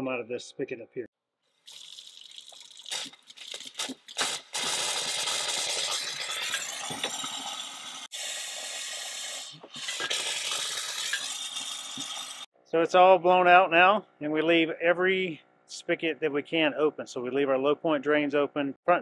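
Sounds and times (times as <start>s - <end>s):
faucet sputtering water and air: 1.6s - 12.5s.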